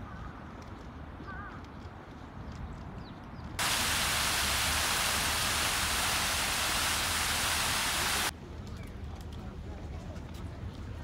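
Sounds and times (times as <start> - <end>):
loud steady static hiss: 3.6 - 8.3.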